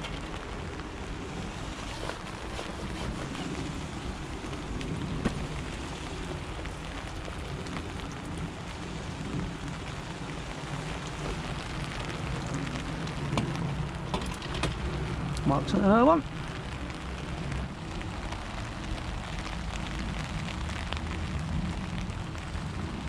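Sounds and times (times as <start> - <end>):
rain on umbrella: 0.0 - 23.0.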